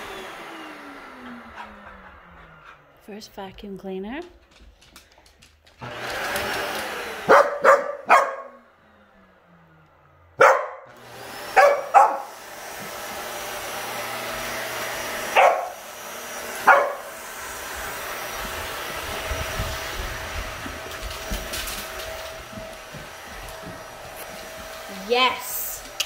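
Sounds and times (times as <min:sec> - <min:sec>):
vacuum cleaner motor running: 0:00.0 - 0:03.3, 0:04.9 - 0:26.0
dog barking: 0:07.3 - 0:08.6, 0:10.4 - 0:10.9, 0:11.5 - 0:12.3, 0:15.3 - 0:15.8, 0:16.6 - 0:17.1.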